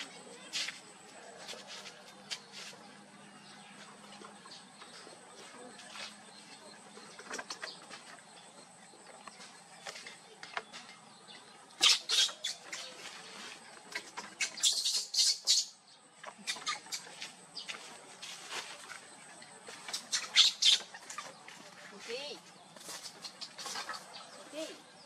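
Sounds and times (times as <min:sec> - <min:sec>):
baby monkey squeaking: 0:11.8 - 0:12.8, 0:14.4 - 0:15.8, 0:16.4 - 0:17.1, 0:19.9 - 0:21.2
scuffling on wooden decking: 0:17.0 - 0:20.1.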